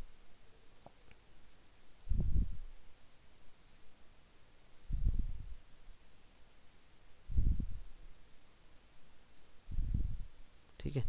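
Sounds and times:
computer mouse clicking: 0.2 - 1.3, 2.0 - 3.9, 4.6 - 6.5, 7.3 - 8.0, 9.4 - 10.7.

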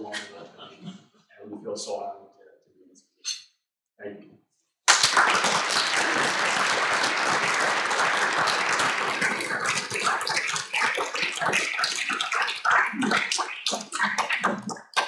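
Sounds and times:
people applauding: 4.9 - 15.0.

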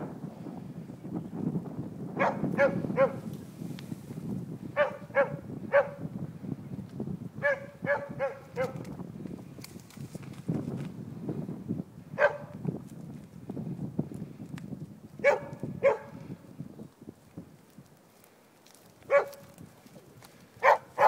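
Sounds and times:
dog barking: 2.2 - 3.2, 4.8 - 6.0, 7.4 - 8.8, 12.2 - 12.6, 15.2 - 16.2, 19.1 - 19.5, 20.6 - 21.0.

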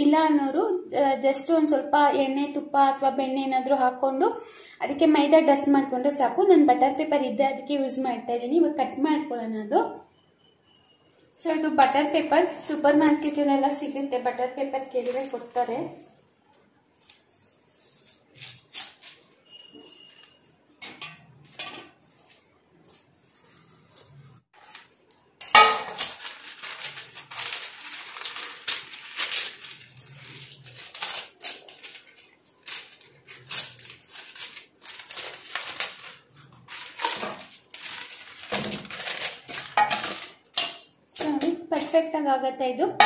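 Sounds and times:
paper crackling and rustling: 17.0 - 25.1, 25.8 - 40.6.

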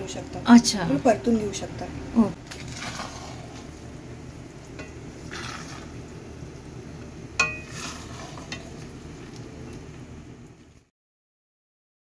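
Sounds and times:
soft sizzle: 0.0 - 10.9
spatula stirring pasta in sauce: 2.5 - 9.7
spatula clinking against pan: 7.4 - 7.7.

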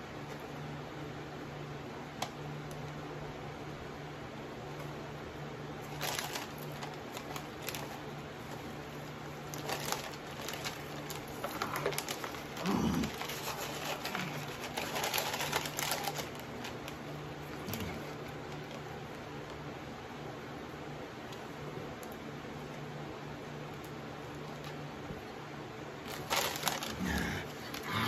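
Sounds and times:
plastic wrapper crinkling: 5.8 - 19.6, 26.0 - 28.0
low hummed voice: 11.2 - 16.0, 17.3 - 18.5, 26.4 - 28.0.

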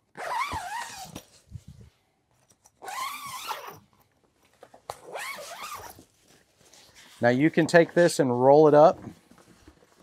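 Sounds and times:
zipper pulled open: 0.1 - 1.3, 2.8 - 3.9, 5.0 - 6.1.

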